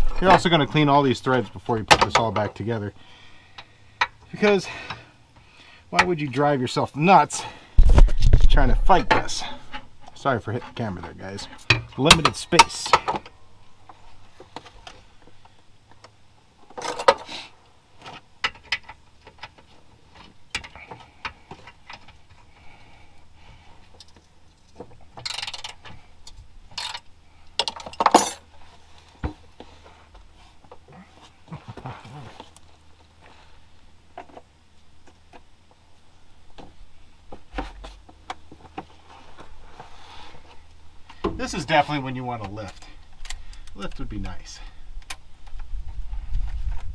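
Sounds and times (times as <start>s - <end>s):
hand tools and metal parts clicking: 16.0s - 17.3s, 18.0s - 22.6s, 23.8s - 28.5s.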